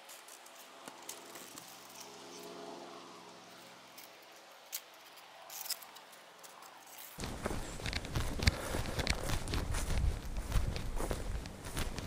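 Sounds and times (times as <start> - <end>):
small clicks and rustles: 4.0 - 12.0.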